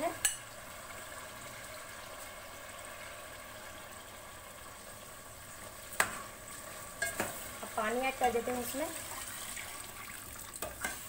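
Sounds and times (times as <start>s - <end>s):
food sizzling in a pot: 0.0s - 11.0s
spatula clinking on pot: 7.0s - 7.4s, 10.6s - 11.0s.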